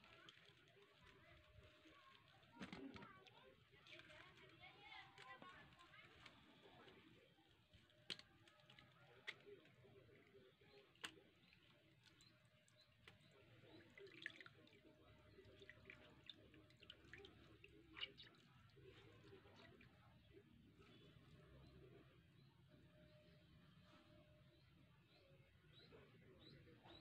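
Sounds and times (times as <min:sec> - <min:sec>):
liquid dripping and trickling: 0:00.0 - 0:21.5.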